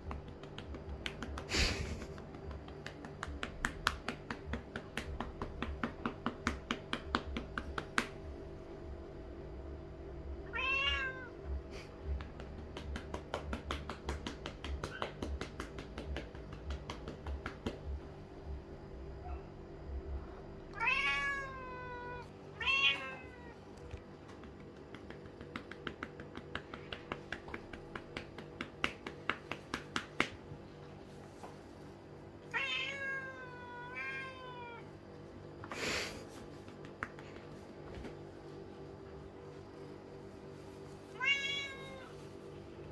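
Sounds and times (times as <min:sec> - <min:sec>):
hand patting cat's rump: 0:00.0 - 0:08.4, 0:11.7 - 0:18.1, 0:24.2 - 0:30.4
cat meowing loudly: 0:10.4 - 0:11.3, 0:20.7 - 0:23.6, 0:32.5 - 0:34.9, 0:41.2 - 0:42.1.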